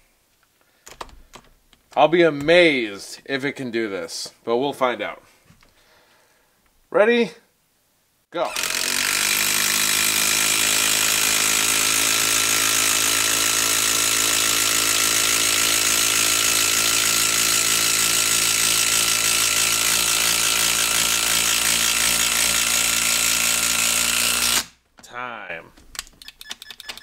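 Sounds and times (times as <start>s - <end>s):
impact driver hammering screw: 8.5s - 24.8s.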